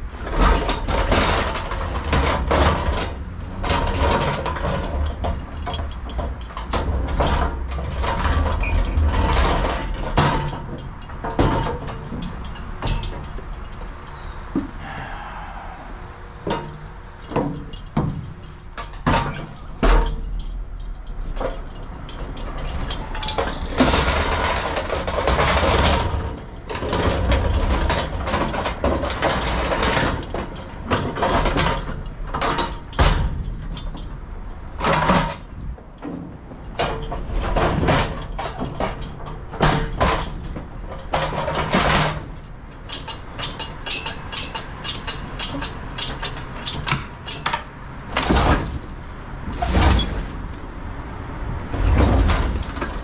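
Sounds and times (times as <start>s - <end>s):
pallet jack clanking and rattling: 0.0s - 14.8s, 16.4s - 50.7s, 51.5s - 53.0s
wheels rumbling over metal floor: 0.0s - 53.0s.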